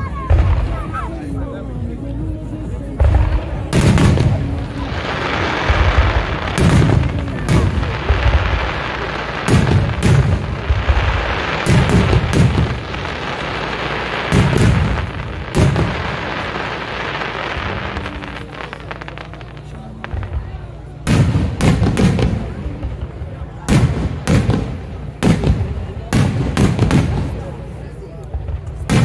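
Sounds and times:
firework shells booming: 3.0s - 16.8s.

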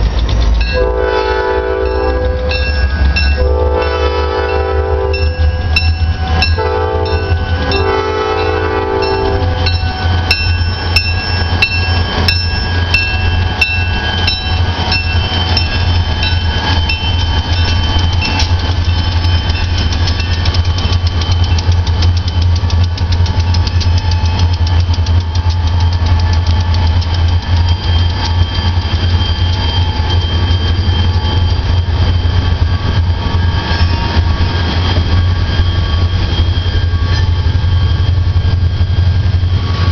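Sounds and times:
diesel engines rumbling: 0.0s - 39.9s
locomotive bell ringing: 0.0s - 39.9s
locomotive horn blasts: 0.7s - 10.2s.

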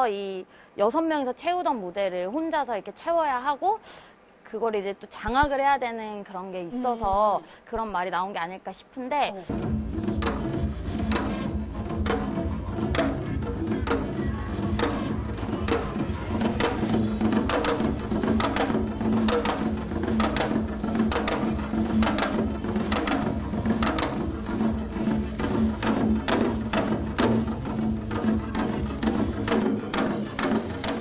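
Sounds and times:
drum struck with sticks: 9.5s - 31.0s
steady low tone in music: 9.5s - 31.0s.

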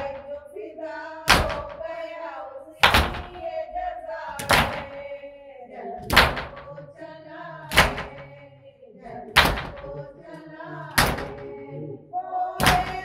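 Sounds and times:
voice chanting a lament: 0.0s - 13.0s
hand strikes on chest: 1.3s - 1.8s, 2.8s - 3.4s, 7.7s - 8.3s, 9.4s - 9.9s, 12.6s - 13.0s.

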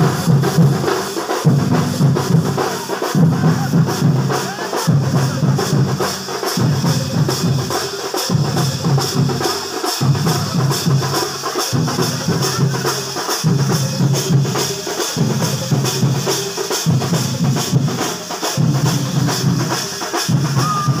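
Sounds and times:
drum troupe playing driving beat: 0.0s - 21.0s.

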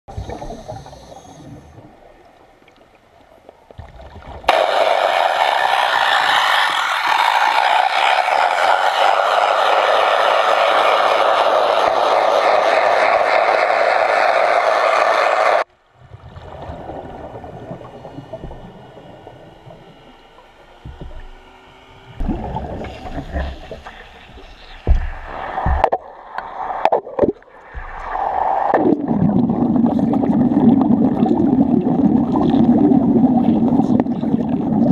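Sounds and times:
underwater air bubbles rushing: 0.1s - 34.9s.

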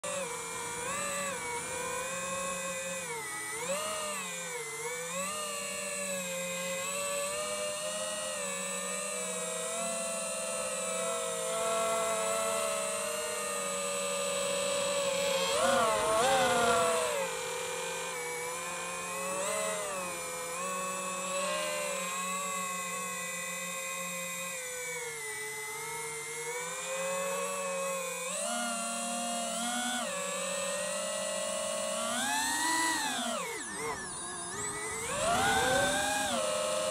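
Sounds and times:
drone motors whining: 0.0s - 36.9s.

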